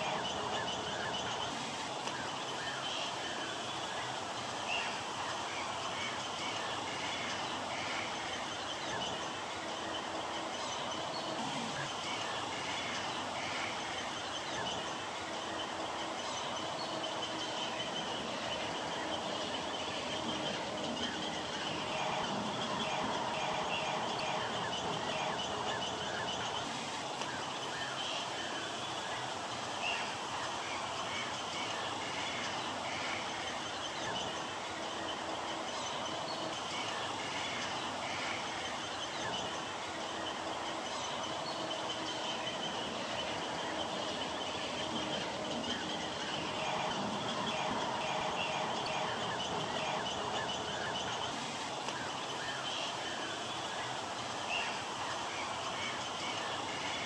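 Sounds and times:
birds chattering: 0:00.0 - 0:57.0
steady outdoor hiss: 0:00.0 - 0:57.0.

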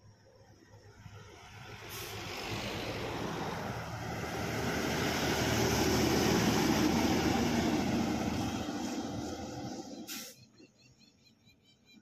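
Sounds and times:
truck passing by: 0:00.0 - 0:11.9.

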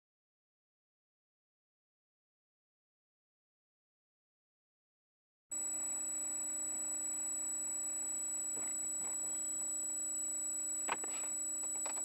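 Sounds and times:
electronic hum and whine: 0:05.5 - 0:12.0.

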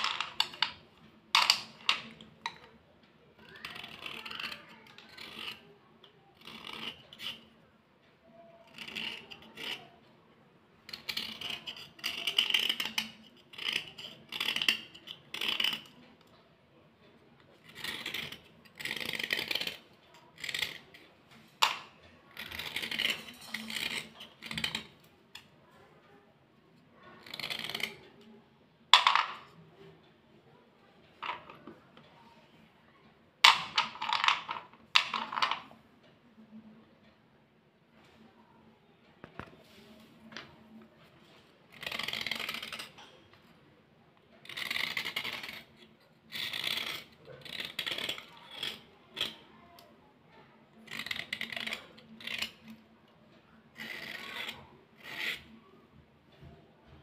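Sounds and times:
slate pencils scraping: 0:00.0 - 0:10.1, 0:10.8 - 0:16.4, 0:17.5 - 0:25.5, 0:26.8 - 0:28.4, 0:33.5 - 0:35.8, 0:39.3 - 0:43.5, 0:44.4 - 0:52.9, 0:53.6 - 0:55.6
slate clicking on slate: 0:29.0 - 0:29.6.

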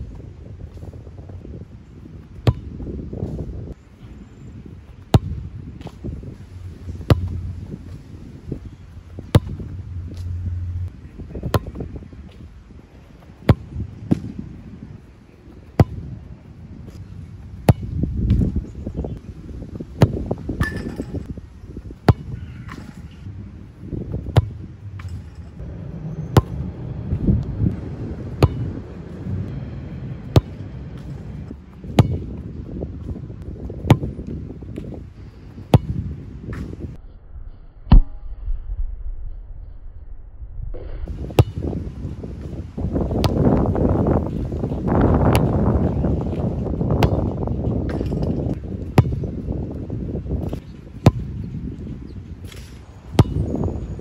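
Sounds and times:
ball kicked thump: 0:02.4 - 0:03.4, 0:07.0 - 0:08.0, 0:09.1 - 0:10.9, 0:15.8 - 0:16.0, 0:17.6 - 0:18.6, 0:24.2 - 0:25.4, 0:28.4 - 0:28.7, 0:31.9 - 0:32.3, 0:33.8 - 0:34.9, 0:35.7 - 0:36.8, 0:41.4 - 0:41.7, 0:47.0 - 0:47.3, 0:49.0 - 0:49.3, 0:50.4 - 0:51.3, 0:52.5 - 0:53.5
low rumble: 0:05.2 - 0:12.9, 0:15.8 - 0:52.6.

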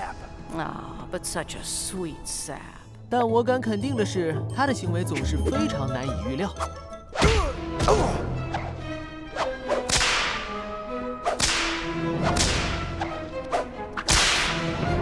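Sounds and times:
background music: 0:00.0 - 0:15.0
cartoon whip cracks and swishes: 0:09.3 - 0:10.5, 0:11.2 - 0:14.7.

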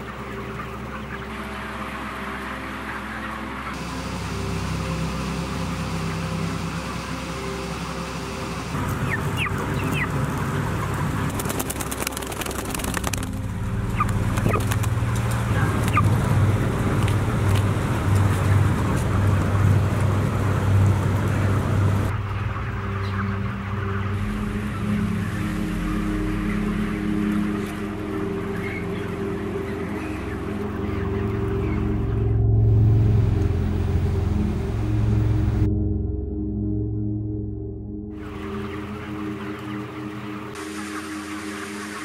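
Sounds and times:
chicks peeping: 0:00.0 - 0:04.2, 0:08.7 - 0:32.4, 0:38.2 - 0:42.0
chickens clucking: 0:00.0 - 0:04.4, 0:08.4 - 0:32.4, 0:38.2 - 0:42.0
steady low hum: 0:00.0 - 0:42.0.

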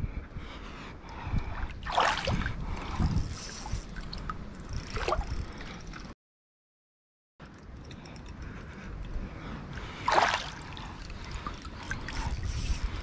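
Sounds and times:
water sloshing and splashing: 0:01.5 - 0:06.1, 0:09.9 - 0:13.0.

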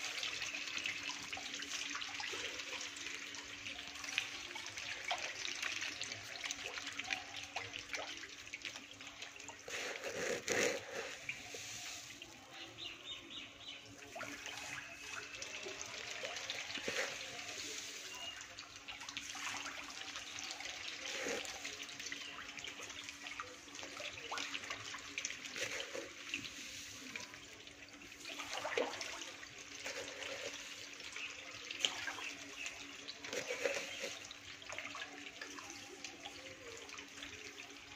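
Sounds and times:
fish splashing in water: 0:13.9 - 0:35.6.

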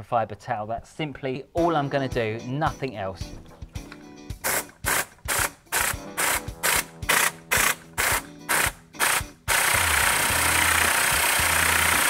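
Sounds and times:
cleaning gun air bursts: 0:04.4 - 0:12.0.

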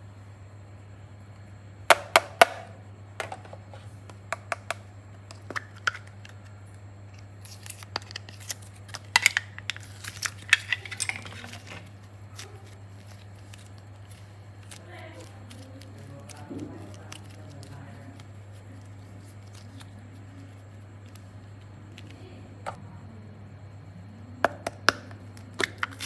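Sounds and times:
steady low hum: 0:00.0 - 0:26.0
clay squishing and peeling: 0:05.3 - 0:22.4, 0:25.2 - 0:26.0.

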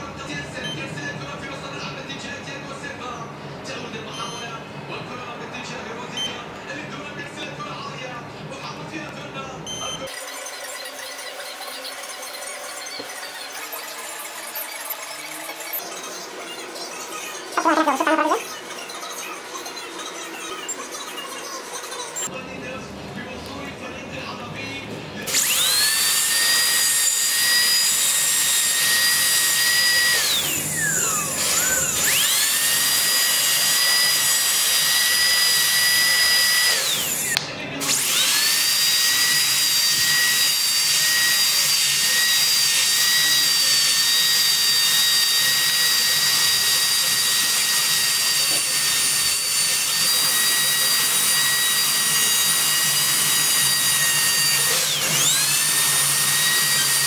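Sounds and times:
dental drill whining: 0:17.6 - 0:18.4, 0:25.3 - 0:57.0.

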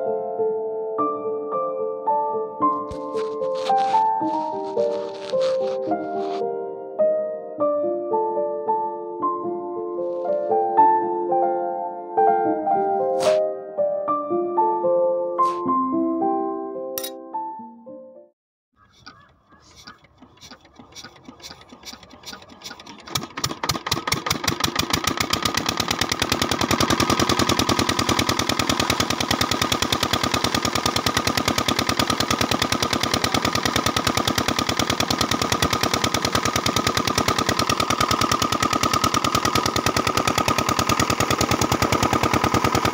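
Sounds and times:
model diesel engine running: 0:19.2 - 0:42.9.

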